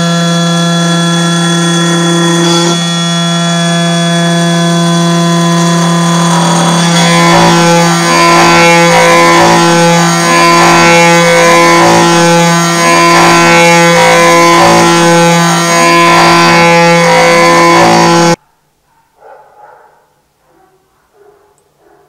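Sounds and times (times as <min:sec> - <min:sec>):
milling machine whine: 0:00.0 - 0:18.4
rising and falling pitch sweeps: 0:00.0 - 0:18.4.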